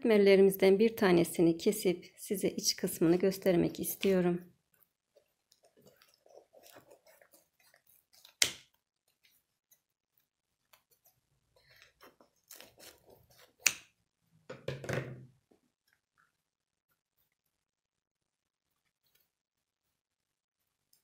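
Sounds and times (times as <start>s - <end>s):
pastry snapping: 5.6s - 8.9s, 12.4s - 14.0s.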